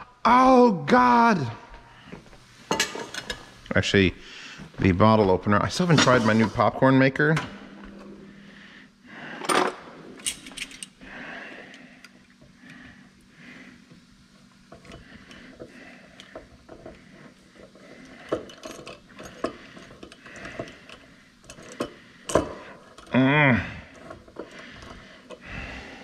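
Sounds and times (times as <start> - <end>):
metal utensils clinking: 2.7 - 3.5, 18.2 - 23.1.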